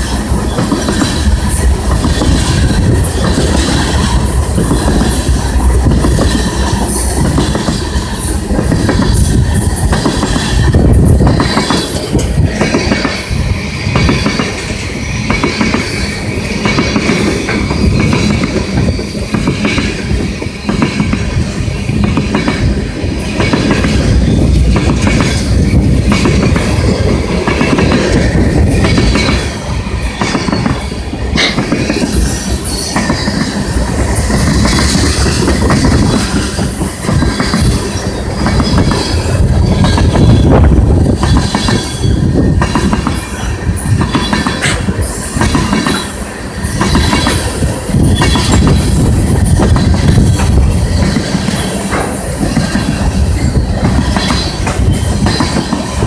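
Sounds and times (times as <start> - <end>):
clickety-clack over rail joints: 0.0 - 56.0
train wheels rumbling on rail: 0.0 - 56.0.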